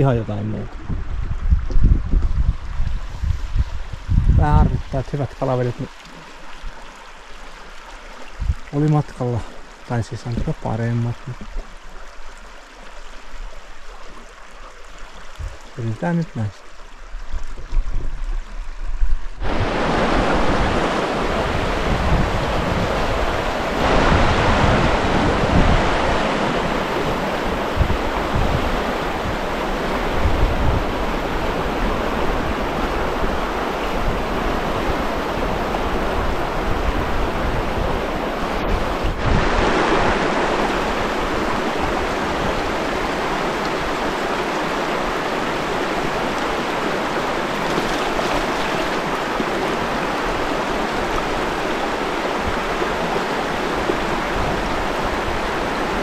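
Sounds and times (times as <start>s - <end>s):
low gusty rumble: 0.0s - 5.0s, 17.6s - 42.8s
river water rushing: 4.8s - 17.6s, 18.2s - 56.0s.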